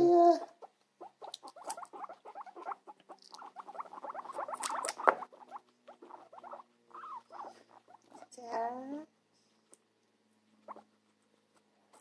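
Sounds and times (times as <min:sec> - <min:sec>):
guinea pig chewing vegetables: 0:00.4 - 0:08.4, 0:10.5 - 0:12.0.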